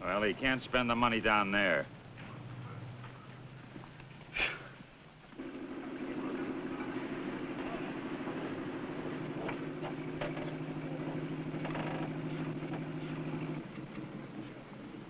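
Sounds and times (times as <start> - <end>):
heavy machinery engine running: 5.3 - 15.0.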